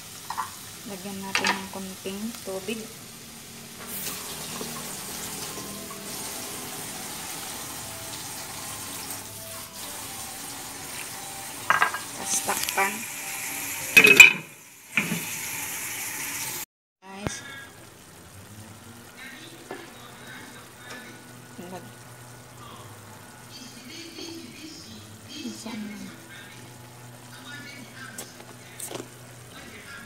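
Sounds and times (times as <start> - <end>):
food sizzling in a wok: 0.0 - 30.0
glass lid clattering on wok: 11.7 - 12.1, 14.0 - 15.2.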